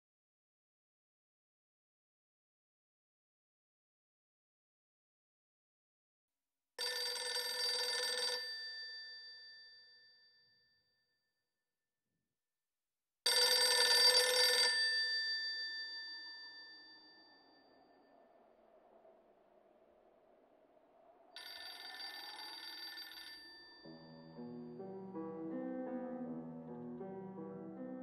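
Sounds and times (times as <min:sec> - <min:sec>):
telephone bell ringing: 0:06.8 - 0:09.9, 0:13.3 - 0:17.2, 0:21.4 - 0:24.7.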